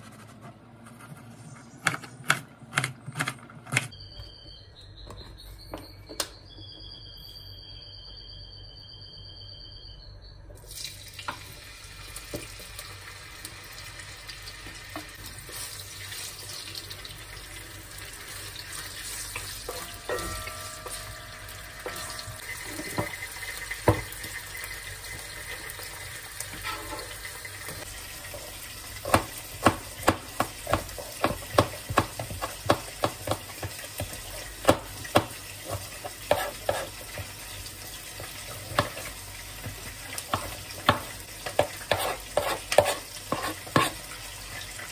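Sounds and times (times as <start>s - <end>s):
food sizzling in a wok: 10.8s - 44.9s
knife chopping on cutting board: 29.0s - 37.0s, 38.7s - 39.1s, 40.3s - 44.0s.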